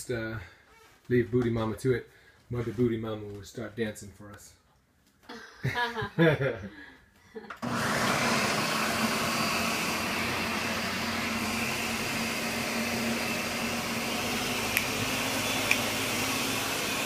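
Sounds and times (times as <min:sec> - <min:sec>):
blender motor whirring: 0:07.6 - 0:17.0.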